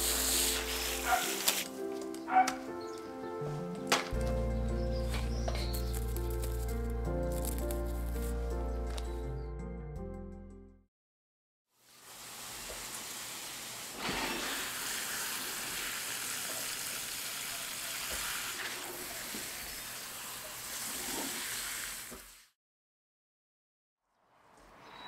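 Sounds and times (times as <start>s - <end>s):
hose spraying water: 0.0s - 1.8s, 11.8s - 22.6s.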